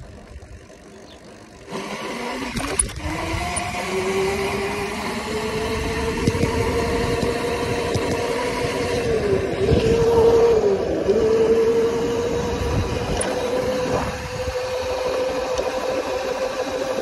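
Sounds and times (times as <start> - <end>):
electric dirt bike motor whining: 0.0 - 17.0
low riding rumble: 0.0 - 17.0.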